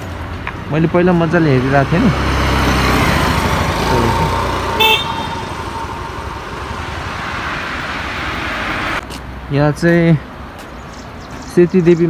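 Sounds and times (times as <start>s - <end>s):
road vehicle rumble: 0.0s - 12.0s
horn toot: 3.8s - 6.4s.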